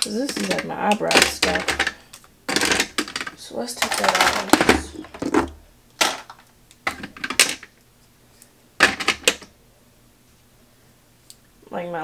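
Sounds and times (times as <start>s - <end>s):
plastic items clattering in drawer: 0.0s - 7.7s, 8.8s - 9.5s.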